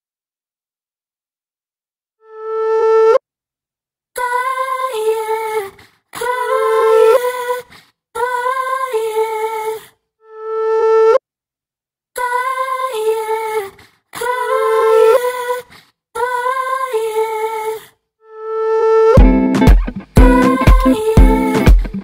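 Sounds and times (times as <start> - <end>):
humming melodic line: 19.2 - 22.0.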